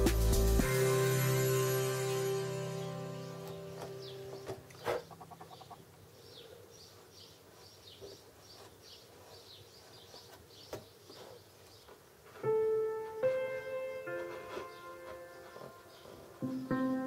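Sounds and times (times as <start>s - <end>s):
piano notes: 0.0s - 5.2s, 12.3s - 17.0s
bird-like chirps: 3.2s - 12.0s.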